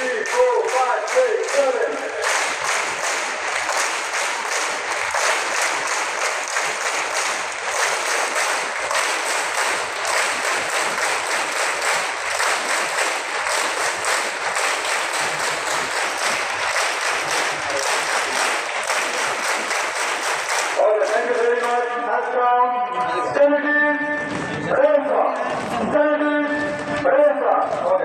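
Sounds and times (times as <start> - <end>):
crowd of children clapping: 0.0 - 22.4.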